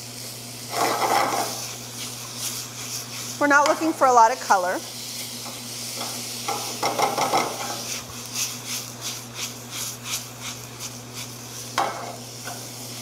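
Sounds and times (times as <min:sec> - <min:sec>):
spatula scraping a pan: 0:00.6 - 0:04.1, 0:05.0 - 0:12.8
food swishing in tossed pan: 0:00.8 - 0:04.0, 0:06.7 - 0:12.0.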